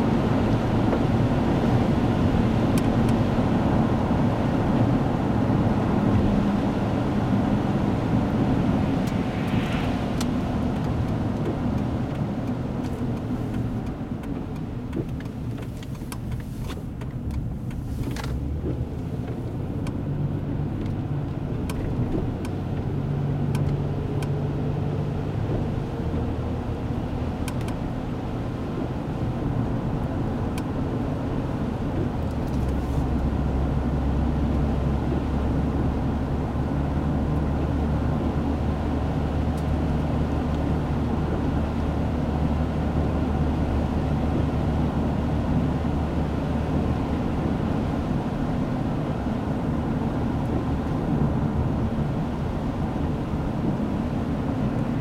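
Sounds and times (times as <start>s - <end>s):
car engine hum: 0.0s - 55.0s
tyres on wet pavement: 8.8s - 19.9s.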